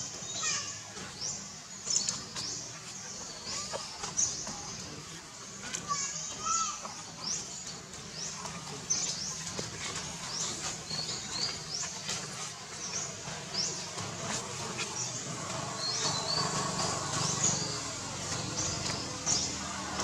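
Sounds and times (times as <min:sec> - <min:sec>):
birds chirping: 0:00.0 - 0:20.0
outdoor background noise: 0:00.0 - 0:20.0.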